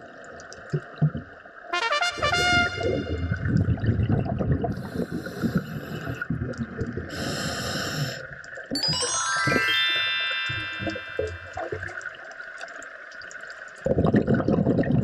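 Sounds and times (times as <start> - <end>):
muffled underwater water rumble: 2.7 - 7.1
short glittering chime: 8.8 - 11.8.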